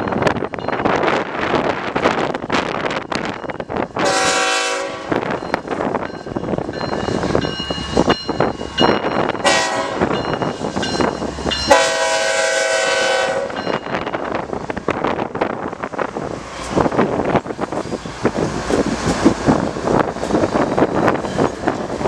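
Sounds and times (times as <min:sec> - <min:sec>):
diesel locomotives rumbling past: 0:00.0 - 0:22.0
locomotive air horn blasts: 0:04.0 - 0:05.3, 0:09.4 - 0:10.2, 0:11.7 - 0:13.7.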